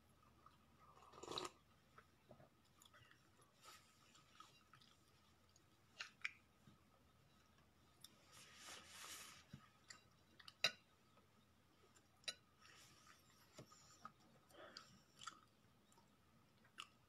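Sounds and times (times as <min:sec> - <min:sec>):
soft hiss: 0:08.0 - 0:09.9.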